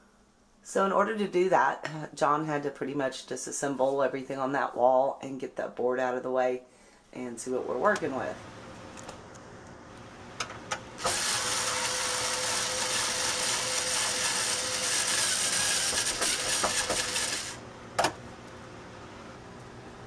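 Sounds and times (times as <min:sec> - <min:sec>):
cordless screwdriver motor whine: 0:11.0 - 0:17.6.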